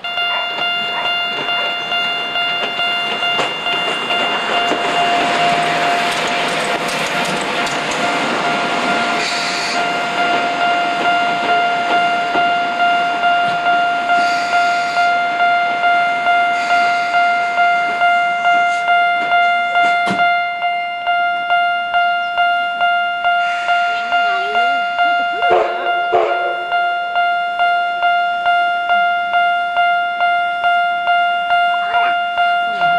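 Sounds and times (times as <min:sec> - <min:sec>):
steam locomotive running: 0:00.0 - 0:20.7, 0:23.2 - 0:26.9
level crossing bell ringing: 0:00.0 - 0:32.9
steam hissing: 0:09.2 - 0:09.9.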